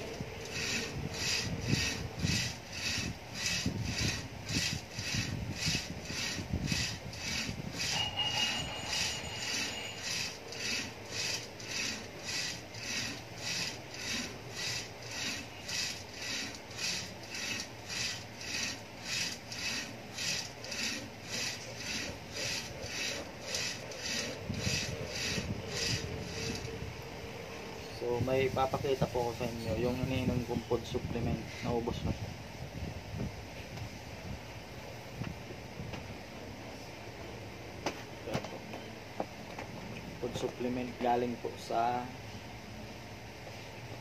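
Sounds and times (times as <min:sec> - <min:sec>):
rope rubbing over pulley: 0:00.0 - 0:26.8.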